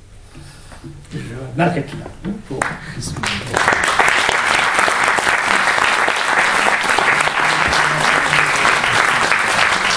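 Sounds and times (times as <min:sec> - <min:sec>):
audience applauding: 0:02.6 - 0:09.9.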